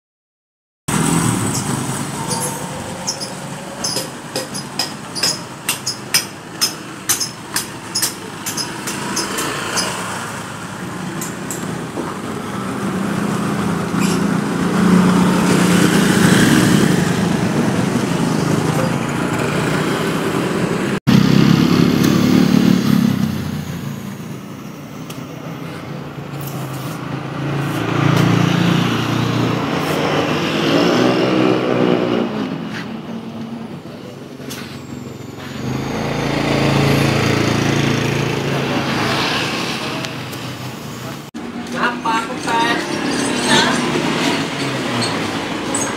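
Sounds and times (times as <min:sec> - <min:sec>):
small motorcycles passing: 0:08.6 - 0:24.6, 0:25.6 - 0:32.8, 0:34.4 - 0:41.2, 0:41.8 - 0:45.9.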